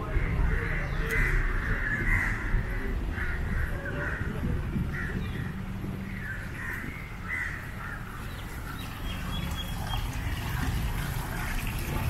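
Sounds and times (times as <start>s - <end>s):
low outdoor rumble: 0.0s - 12.0s
crows cawing: 0.1s - 5.5s, 6.2s - 8.4s.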